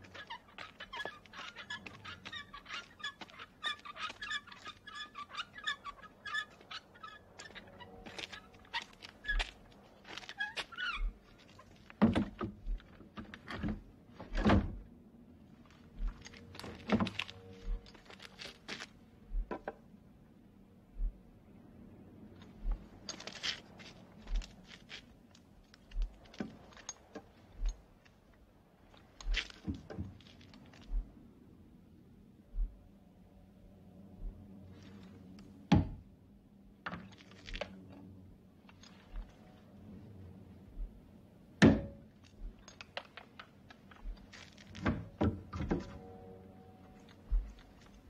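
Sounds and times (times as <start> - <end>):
dull low thuds: 12.0 - 13.0, 19.3 - 19.7, 21.0 - 21.3, 22.6 - 22.9, 26.0 - 26.2, 30.9 - 31.2, 32.5 - 32.9, 34.2 - 34.5, 40.7 - 42.6, 47.3 - 47.6
clicking scraping and rattling: 42.2 - 46.0.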